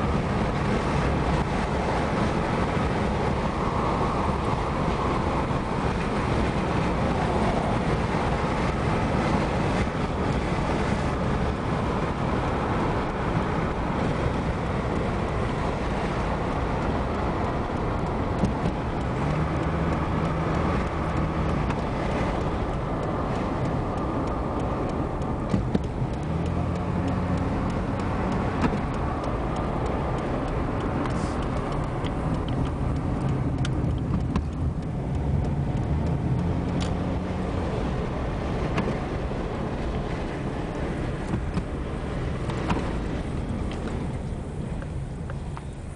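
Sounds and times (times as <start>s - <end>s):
car engine hum: 0.0s - 45.9s
road noise inside car: 0.0s - 45.9s.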